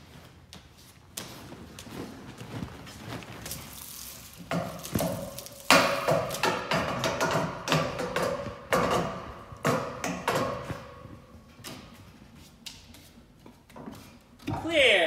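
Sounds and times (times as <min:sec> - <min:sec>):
hanging rings knocking and clanking: 0:04.5 - 0:11.1.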